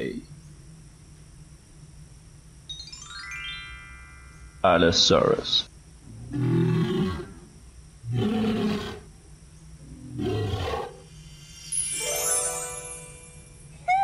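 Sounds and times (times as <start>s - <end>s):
low growling dinosaur roars: 6.0s - 9.1s, 9.8s - 11.1s.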